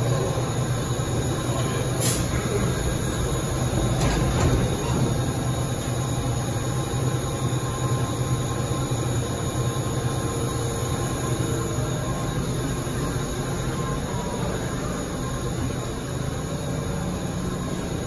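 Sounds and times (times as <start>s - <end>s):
subway train humming: 0.0s - 18.0s
train pulling out: 0.1s - 8.5s
train doors slamming shut: 3.6s - 5.8s.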